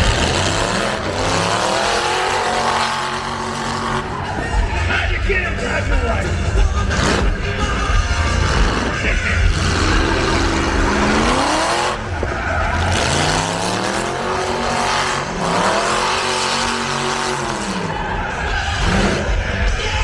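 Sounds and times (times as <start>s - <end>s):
car engine revving: 0.0s - 20.0s
tyres squealing: 6.8s - 20.0s.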